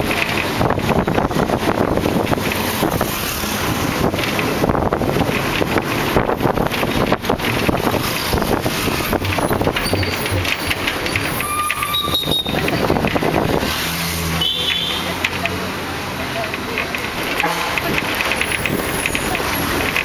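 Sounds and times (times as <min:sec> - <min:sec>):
wind buffeting microphone: 0:00.0 - 0:11.4, 0:12.2 - 0:13.8
moving vehicle running noise: 0:00.0 - 0:20.0.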